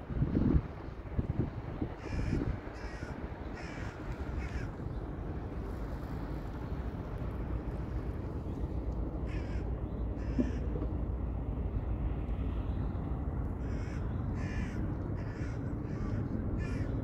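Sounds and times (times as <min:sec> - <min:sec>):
steady low rumble: 0:00.0 - 0:17.0
crows cawing: 0:02.0 - 0:04.7, 0:09.3 - 0:10.7, 0:13.6 - 0:16.9.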